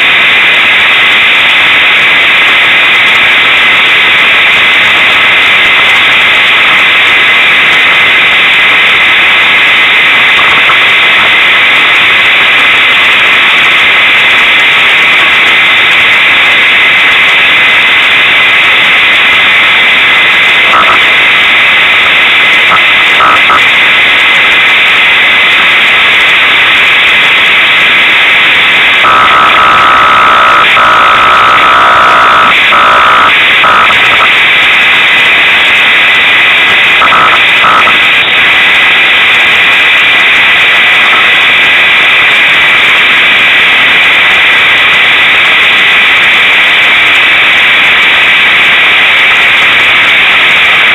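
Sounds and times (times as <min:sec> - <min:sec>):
truck engine distorted roar: 0:28.5 - 0:34.6.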